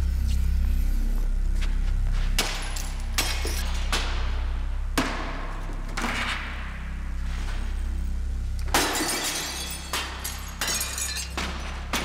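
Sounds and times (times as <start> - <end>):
low musical drone: 0.0 - 12.0
glass breaking and ringing: 8.7 - 12.0.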